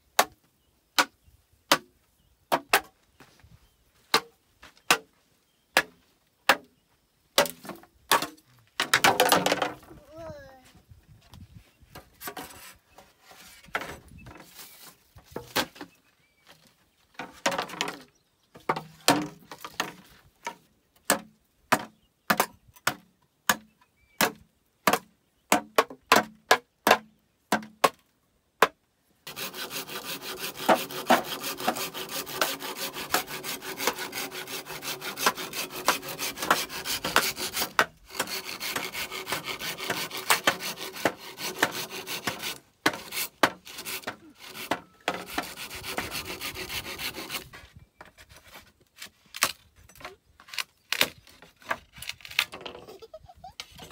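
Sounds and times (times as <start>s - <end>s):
hand saw cutting bamboo: 29.2s - 49.6s.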